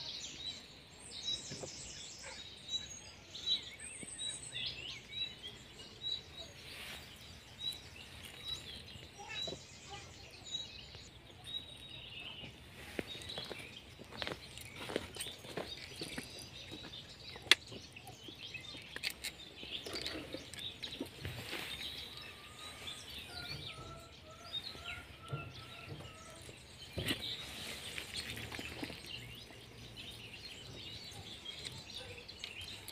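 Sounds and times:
small birds chirping: 0.0 - 32.9.

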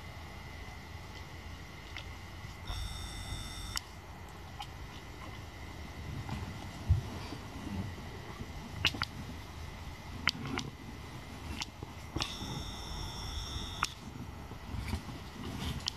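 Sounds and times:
zoom motor whine: 2.7 - 3.9, 12.2 - 14.1.

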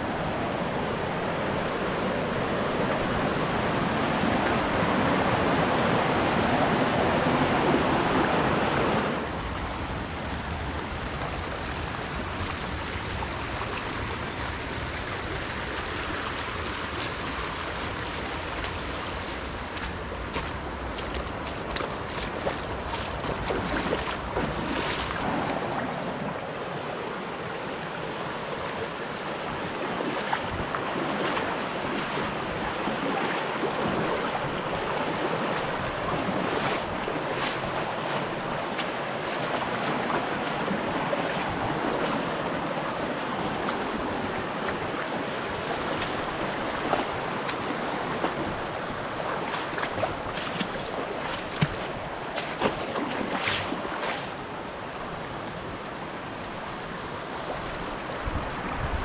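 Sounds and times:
creek running over stones: 0.1 - 59.0
small water splashes: 10.7 - 26.4, 29.6 - 54.5.

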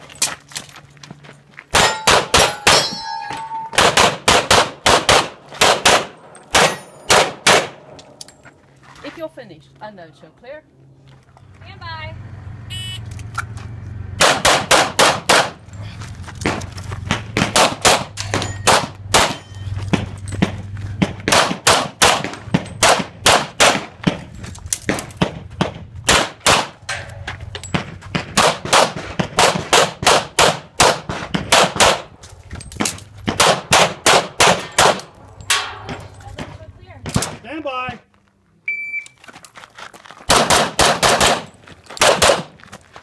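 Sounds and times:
pistol shots: 1.7 - 2.9, 3.8 - 8.0, 14.2 - 15.6, 16.4 - 19.4, 21.0 - 24.2, 24.9 - 26.8, 28.1 - 32.1, 33.3 - 36.0, 40.3 - 42.5.

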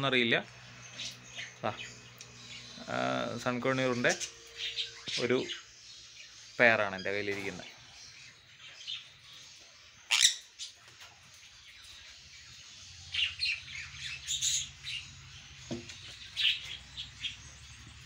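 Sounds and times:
parrots chirping and squawking: 0.5 - 18.0.

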